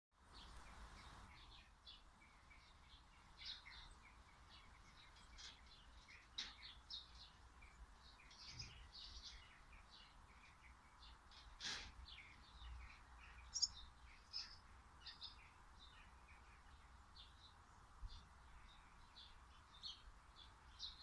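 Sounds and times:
faint songbird chirping: 0.2s - 21.0s.

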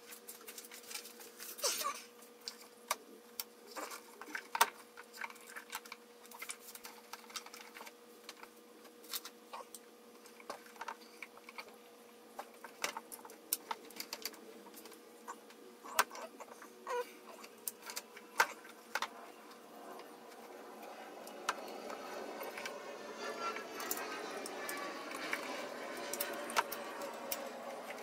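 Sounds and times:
hands clicking wires and parts: 12.4s - 16.2s, 17.4s - 22.8s.

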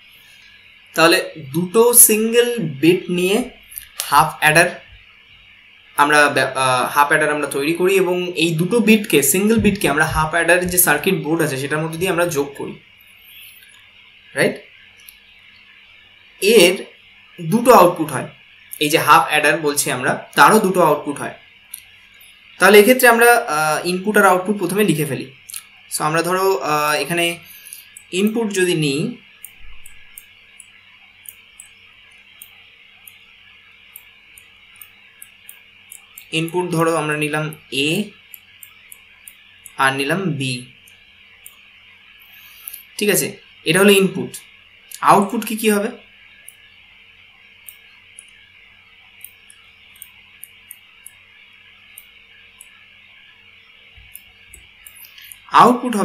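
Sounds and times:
steady background hiss: 0.0s - 56.0s.

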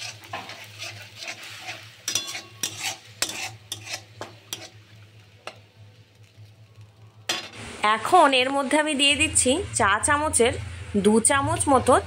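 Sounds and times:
spatula scraping metal wok: 0.0s - 5.6s
paste sizzling in oil: 0.0s - 6.8s.

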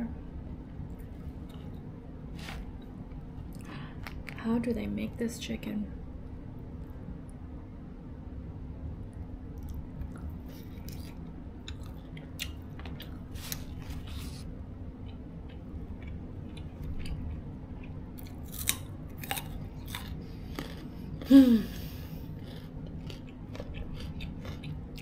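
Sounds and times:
faint steady hum: 0.0s - 25.0s
person chewing chicken: 9.6s - 25.0s.

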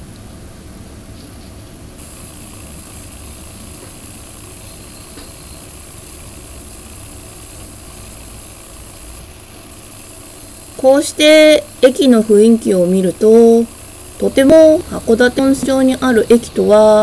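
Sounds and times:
train running noise: 10.8s - 17.0s.

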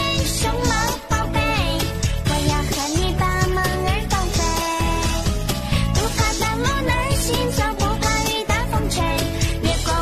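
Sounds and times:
music with steady beat: 0.0s - 10.0s.

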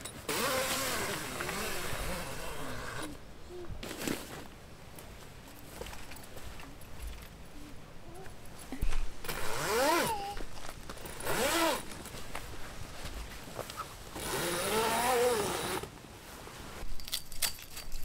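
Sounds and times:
zip rasping on canvas: 0.3s - 3.2s, 9.3s - 10.3s, 11.2s - 11.9s, 14.2s - 15.9s.

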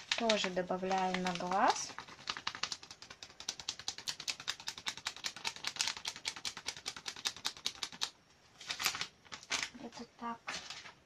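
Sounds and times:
spice packet rattling: 0.0s - 8.1s.

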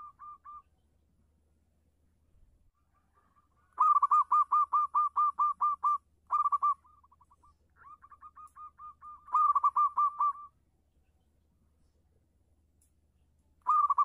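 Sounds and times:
dove cooing: 0.0s - 0.7s, 3.1s - 10.5s, 13.6s - 14.0s.

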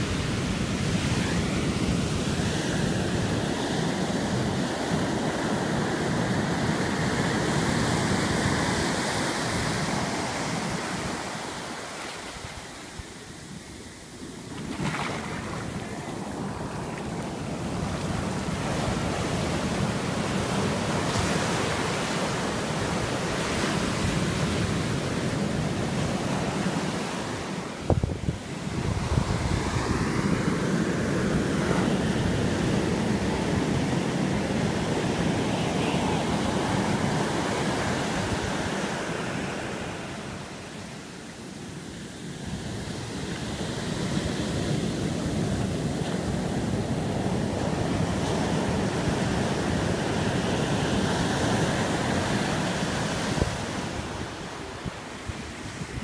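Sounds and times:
surf breaking on sand: 14.2s - 40.7s.

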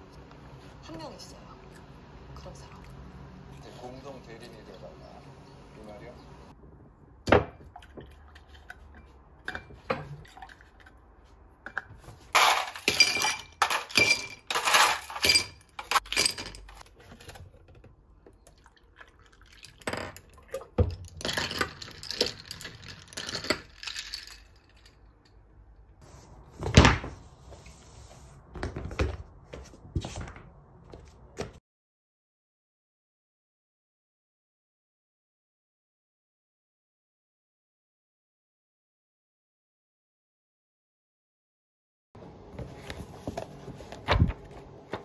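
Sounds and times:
ice cubes clinking into glass: 12.4s - 16.8s, 20.9s - 25.1s
milk pouring over ice: 18.5s - 20.5s.

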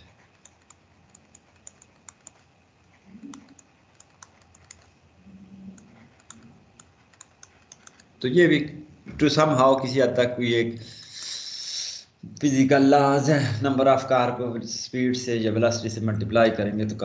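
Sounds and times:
soft low hum: 0.0s - 11.2s.

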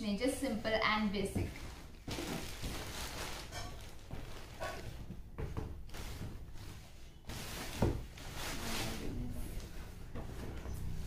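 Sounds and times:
plastic bag rustling: 0.7s - 5.2s, 5.9s - 9.3s.

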